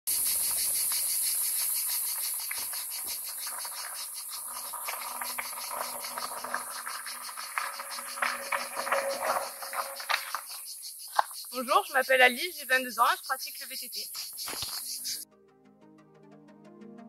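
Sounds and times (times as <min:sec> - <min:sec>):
bike tyres crunching on gravel: 0:00.1 - 0:11.8, 0:14.3 - 0:15.2
insects chirping: 0:00.1 - 0:15.2
steady high hiss: 0:00.1 - 0:15.2.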